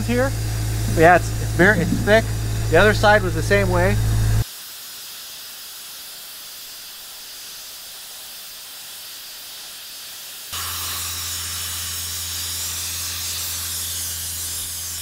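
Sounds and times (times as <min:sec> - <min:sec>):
low steady hum: 0:00.0 - 0:04.4
sandblaster nozzle hissing: 0:00.0 - 0:15.0.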